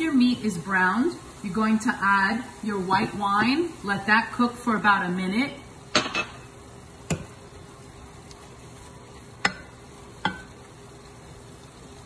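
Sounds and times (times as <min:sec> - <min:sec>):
meat sizzling in a skillet: 0:00.0 - 0:12.0
wooden spoon knocking on pan: 0:07.1 - 0:07.4, 0:09.4 - 0:10.5.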